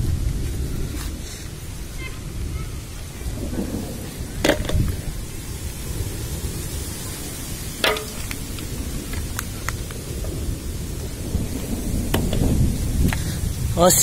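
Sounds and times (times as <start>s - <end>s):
hail and rain pelting: 0.0s - 14.0s
hailstones clicking: 7.4s - 14.0s.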